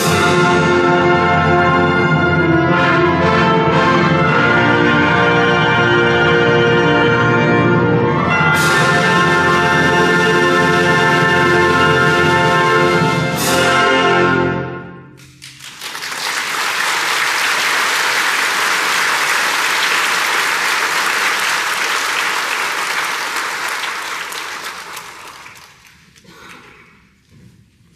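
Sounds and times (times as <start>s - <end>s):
audience applauding: 15.2s - 26.7s.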